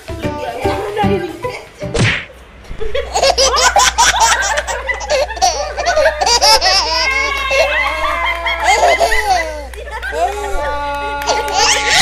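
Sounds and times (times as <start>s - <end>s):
sharp knock: 1.9s - 2.3s
people laughing loudly: 2.8s - 12.0s.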